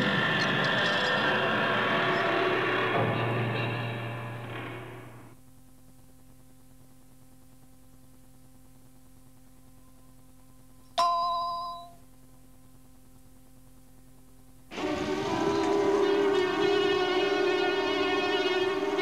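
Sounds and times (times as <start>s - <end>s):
music: 0.0s - 5.4s, 14.7s - 19.0s
tape hiss and hum: 0.0s - 19.0s
bell-like chime: 11.0s - 12.0s.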